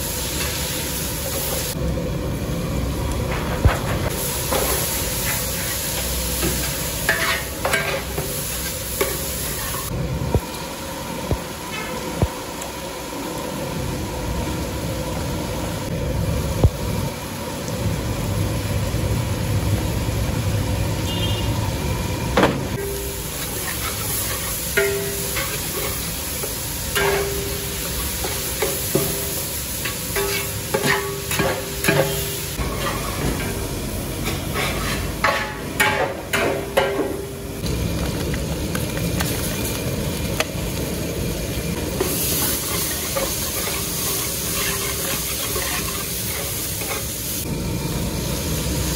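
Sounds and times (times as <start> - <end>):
vegetables sizzling in hot oil: 0.0 - 3.2, 4.0 - 48.9
metal ladle scraping pot: 42.6 - 47.0.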